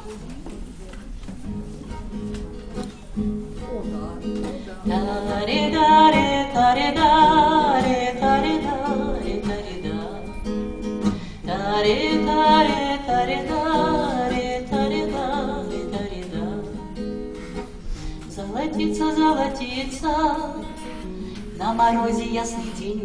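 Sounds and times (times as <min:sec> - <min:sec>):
classical guitar: 0:00.0 - 0:23.0
woman singing: 0:04.8 - 0:17.3, 0:18.2 - 0:23.0.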